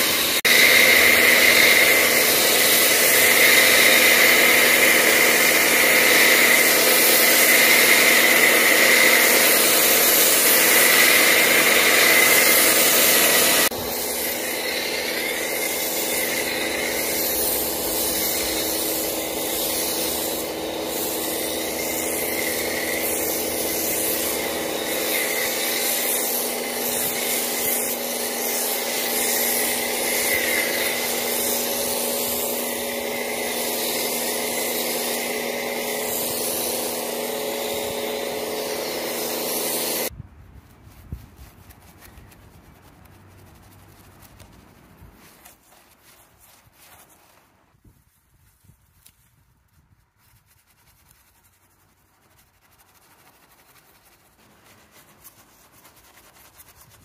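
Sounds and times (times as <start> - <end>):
water spray on car bodywork: 0.0 - 40.1, 50.5 - 57.0
rubbing on car bodywork: 40.6 - 57.0.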